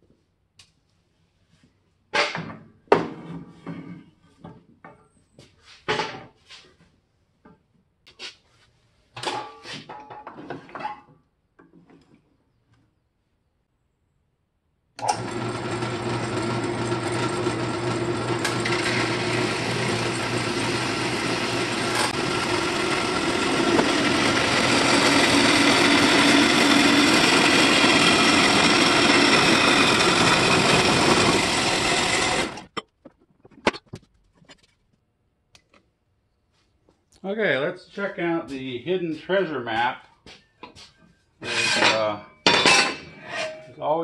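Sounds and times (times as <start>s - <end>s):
band saw cutting metal: 15.0s - 32.7s, 41.4s - 43.9s.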